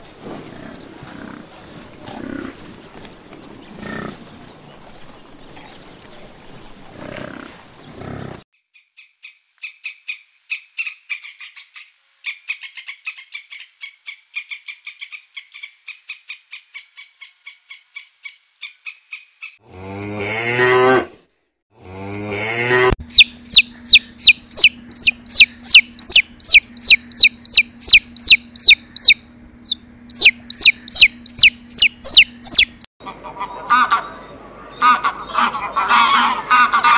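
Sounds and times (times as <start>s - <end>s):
low steady hum: 22.0s - 36.9s
ducklings peeping: 23.0s - 36.9s
high bird chirps: 23.1s - 32.9s.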